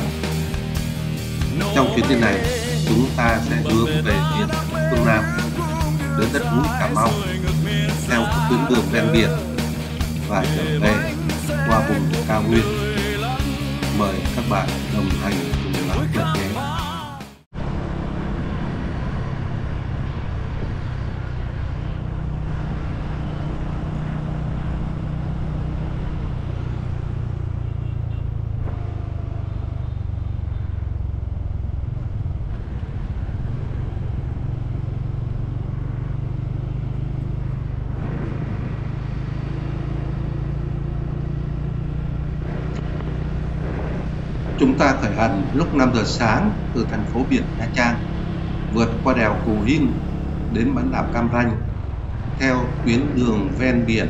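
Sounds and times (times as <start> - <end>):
road and wind noise: 0.0 - 16.6, 17.5 - 54.0
motorcycle engine running: 17.7 - 54.0.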